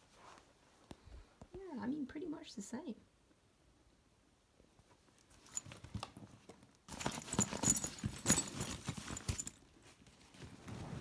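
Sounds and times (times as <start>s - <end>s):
fabric backpacks rustling: 5.3s - 11.0s.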